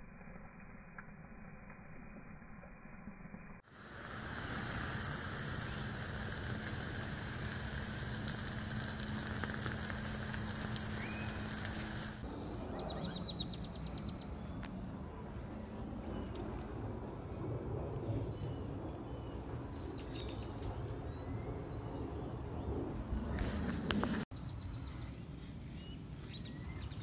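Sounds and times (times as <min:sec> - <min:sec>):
battery venting hiss with crackling: 0:03.6 - 0:12.2.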